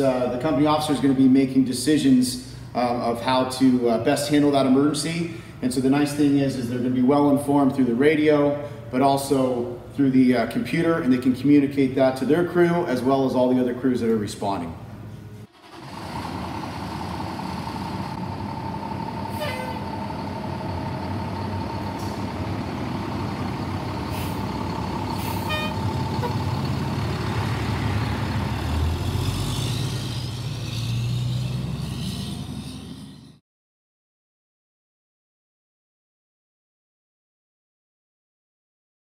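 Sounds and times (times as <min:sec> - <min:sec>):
fire engine running: 0:14.9 - 0:33.4
brief tones: 0:25.3 - 0:26.4.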